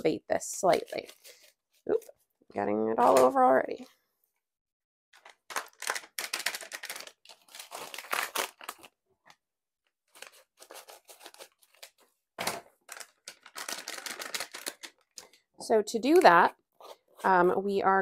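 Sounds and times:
paper rustling and crinkling: 5.2 - 9.4, 10.0 - 15.4.

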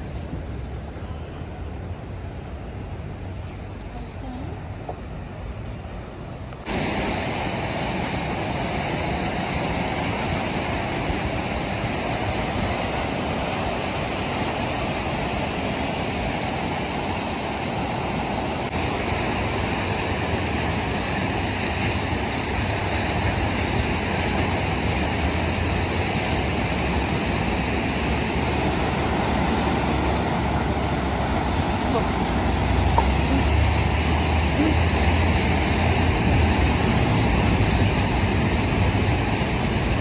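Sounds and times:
wind: 0.0 - 40.0
waves breaking on beach: 6.6 - 40.0.

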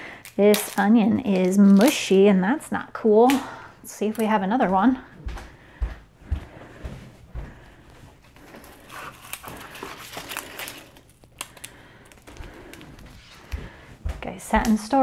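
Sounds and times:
crinkling and rustling: 0.2 - 2.3, 7.4 - 15.0.

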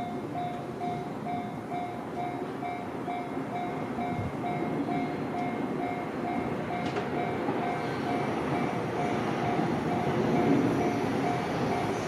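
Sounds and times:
level crossing warning bell: 0.0 - 12.0
train rumble: 0.0 - 12.0.

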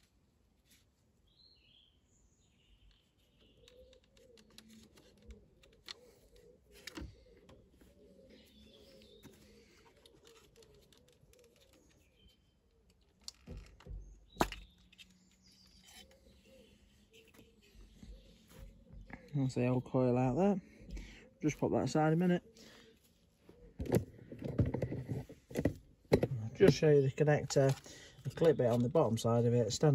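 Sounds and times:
birds chirping: 1.2 - 29.9
plastic knocks: 23.8 - 26.8.

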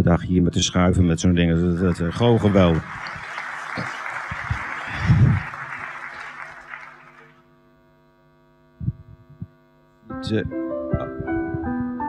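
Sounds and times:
low steady hum: 0.0 - 11.8
applause over loudspeakers: 1.6 - 7.5.

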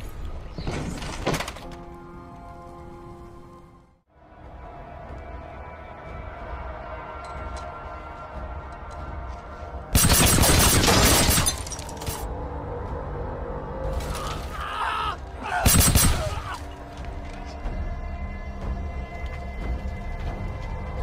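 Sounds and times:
tense background music: 0.0 - 21.0
rapid automatic gunfire: 10.0 - 11.4.

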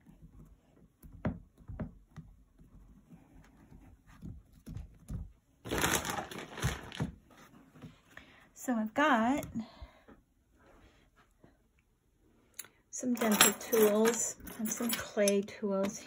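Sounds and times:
hands working plasticine clay: 0.0 - 11.6.

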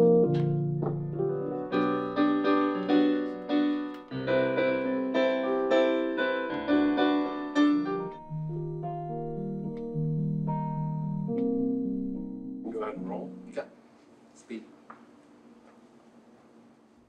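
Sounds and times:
keyboard playing piano chords: 0.0 - 13.8.

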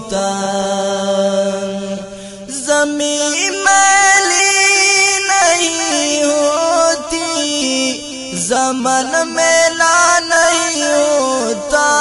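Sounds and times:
chant-like vocal melody: 0.0 - 12.0.

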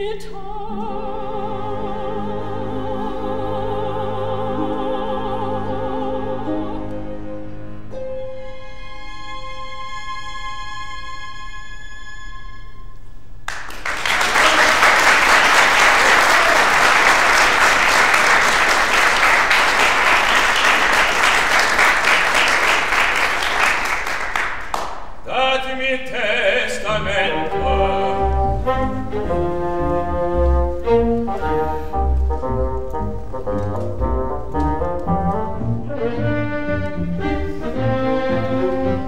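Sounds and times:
audience applauding: 13.5 - 25.2
orchestra playing with brass: 26.8 - 39.0.

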